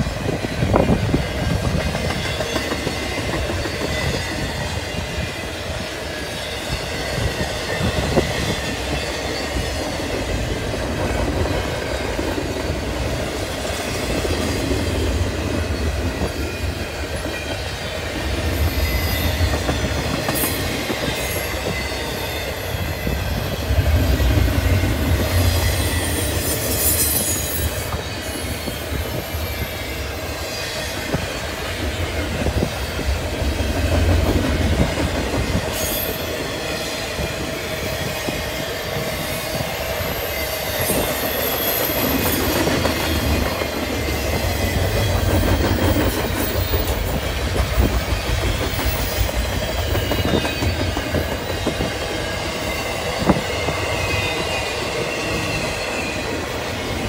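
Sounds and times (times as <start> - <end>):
train wheels rumbling on rail: 0.0 - 57.0
wind gusting on microphone: 0.0 - 57.0
thin wheel squeal: 24.7 - 28.6.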